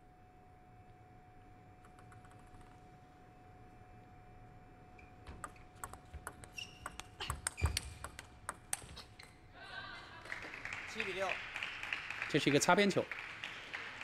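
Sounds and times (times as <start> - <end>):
table tennis ball clicks: 1.8 - 2.8, 5.2 - 9.1.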